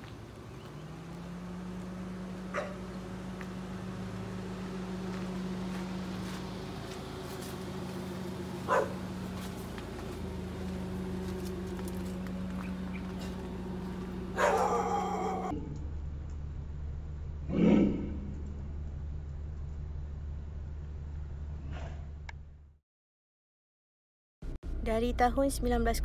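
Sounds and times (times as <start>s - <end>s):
steady low hum: 0.0s - 22.7s
dog barking: 2.5s - 2.9s, 8.7s - 9.0s, 14.4s - 15.6s.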